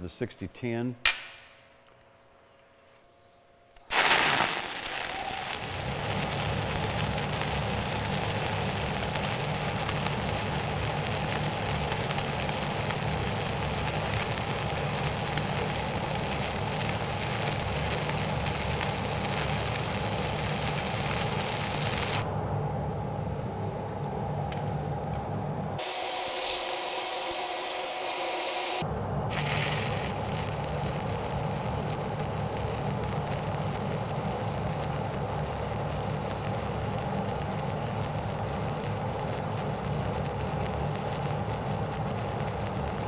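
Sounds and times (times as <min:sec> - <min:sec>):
welding arc crackling and sputtering: 0:03.8 - 0:22.2, 0:25.8 - 0:28.0, 0:29.3 - 0:43.0.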